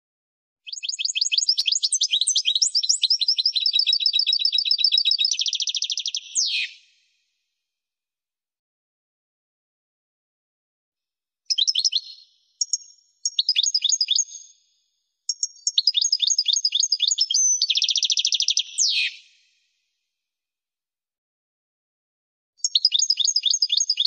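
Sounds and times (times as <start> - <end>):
goldfinch singing: 0.7 - 6.8, 11.5 - 14.5, 15.3 - 19.2, 22.6 - 24.0.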